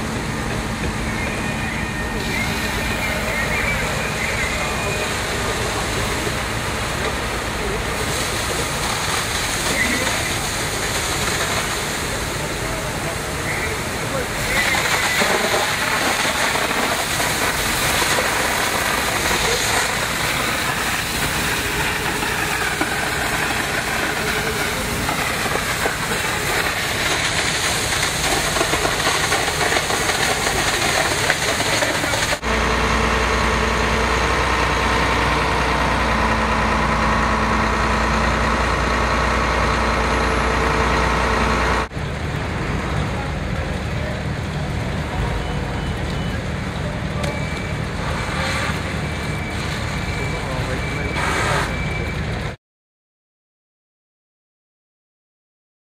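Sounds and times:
fire truck engine humming: 0.0 - 52.6
rushing hiss: 7.8 - 32.4.

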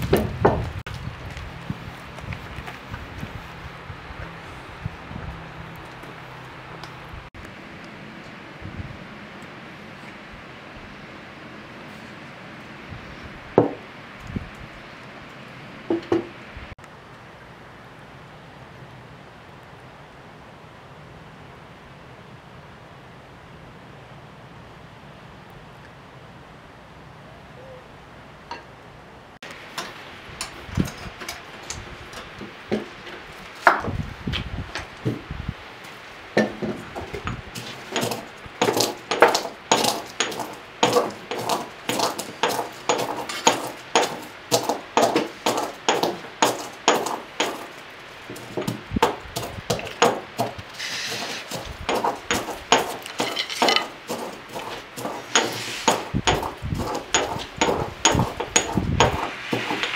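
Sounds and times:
knife chopping on wood: 37.6 - 47.8, 48.4 - 59.9
knife scraping: 50.4 - 59.9.

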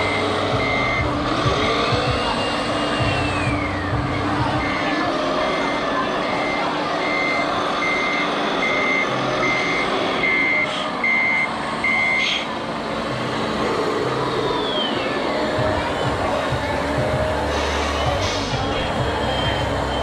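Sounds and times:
reversing alarm beeps: 0.0 - 12.5, 18.4 - 20.0.

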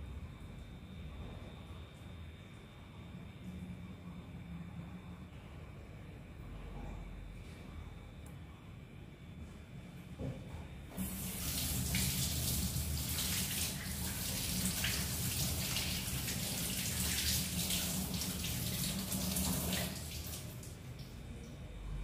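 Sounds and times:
water running into metal sink: 11.0 - 20.8.

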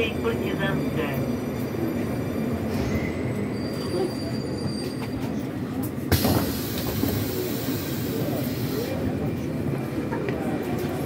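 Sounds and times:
metro train rumbling: 0.0 - 11.0
wheel or brake squeal: 2.7 - 5.4.

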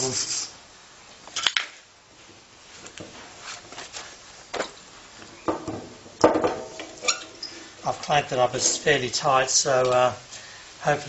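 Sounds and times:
tools knocking and tapping: 5.5 - 7.4.

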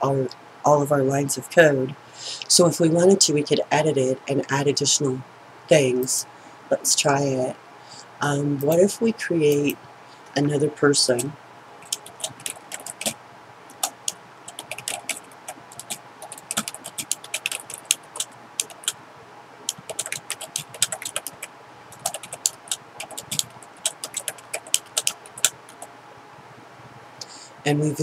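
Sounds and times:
keyboard typing: 11.8 - 19.0, 19.7 - 25.9.

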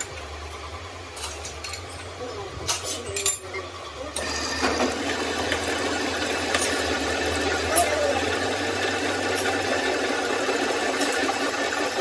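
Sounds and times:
workshop machine running: 0.0 - 12.0
metal tools clinking: 1.1 - 3.7.

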